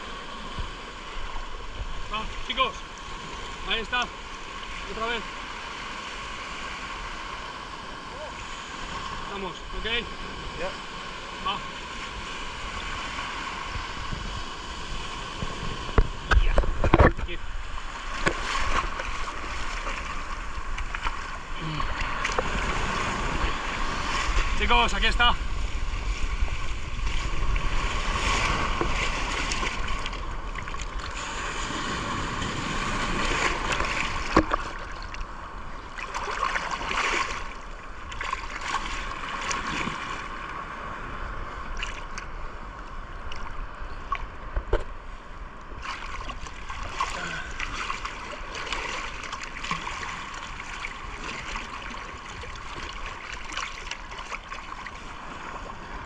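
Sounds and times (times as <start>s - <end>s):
small waves washing over sand: 0.0s - 56.0s
water sloshing and splashing: 15.1s - 24.6s, 26.1s - 40.5s, 41.7s - 42.3s, 45.7s - 55.8s.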